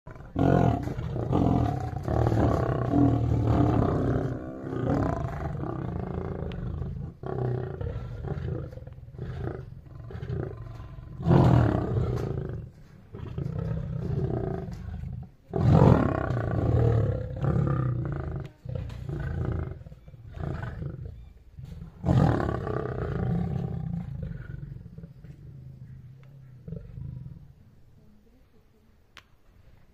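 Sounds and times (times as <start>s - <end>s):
lionesses roaring and growling: 0.1s - 27.6s.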